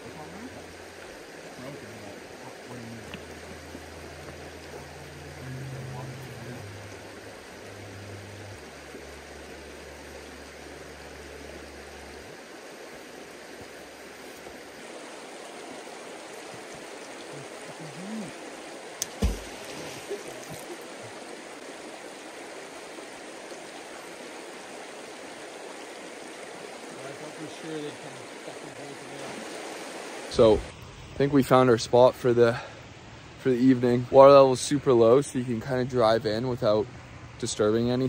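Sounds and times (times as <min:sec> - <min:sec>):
river water rushing over rocks: 0:00.0 - 0:30.7
sharp knocks: 0:19.0 - 0:19.6.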